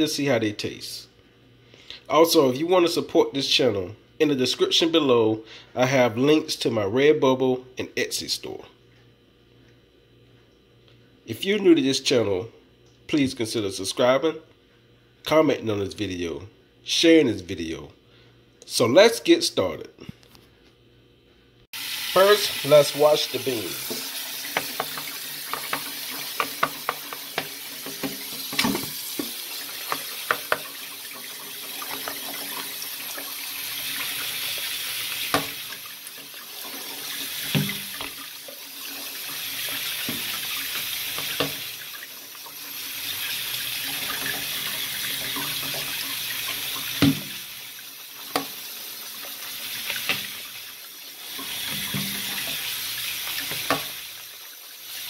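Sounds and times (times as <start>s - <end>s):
tap water splashing: 23.7s - 47.5s, 48.2s - 50.6s, 51.3s - 54.2s.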